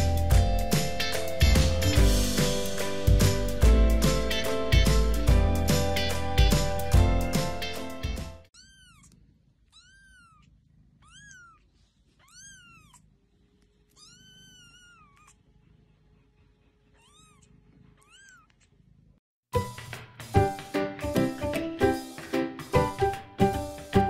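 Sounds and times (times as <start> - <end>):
kitten mewing: 8.6 - 13.2, 13.9 - 15.5, 16.9 - 18.8.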